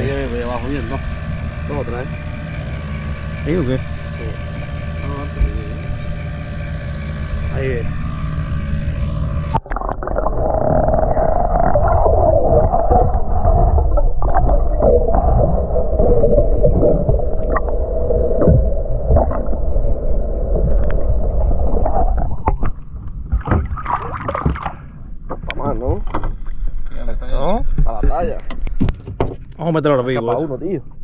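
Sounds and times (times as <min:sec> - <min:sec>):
muffled underwater hum: 0:00.0 - 0:31.0
underwater knocks and clicks: 0:11.5 - 0:17.7, 0:18.4 - 0:19.6, 0:21.8 - 0:26.6, 0:27.7 - 0:29.6.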